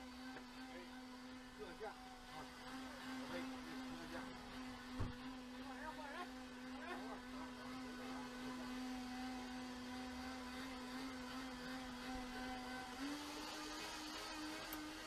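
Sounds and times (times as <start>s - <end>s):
steady motor hum: 0.0s - 15.0s.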